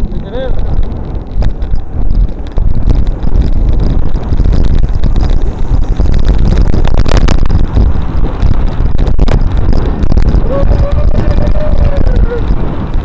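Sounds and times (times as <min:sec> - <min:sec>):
road vibration rumble: 0:00.0 - 0:13.0
wind buffeting microphone: 0:00.0 - 0:13.0.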